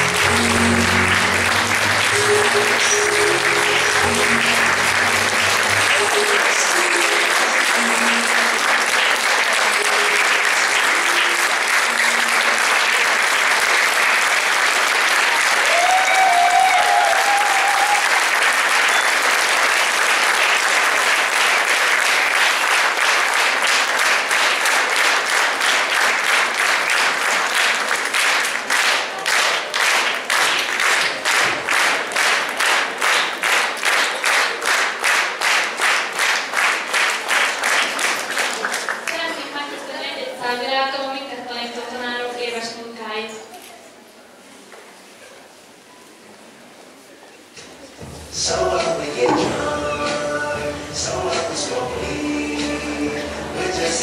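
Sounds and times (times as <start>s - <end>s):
rhythmic clapping in unison: 0.0s - 39.2s, 48.4s - 54.0s
audience applauding: 0.0s - 39.4s.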